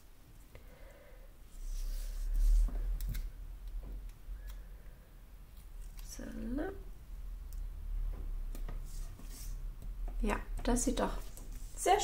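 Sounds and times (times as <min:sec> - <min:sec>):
paper rustling and sliding: 0:01.6 - 0:03.3.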